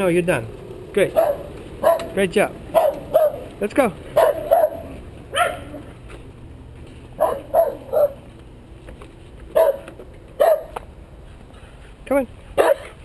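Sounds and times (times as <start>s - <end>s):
dog barking: 1.2s - 3.5s, 4.1s - 5.8s, 7.2s - 8.2s, 9.6s - 10.8s, 12.6s - 13.0s.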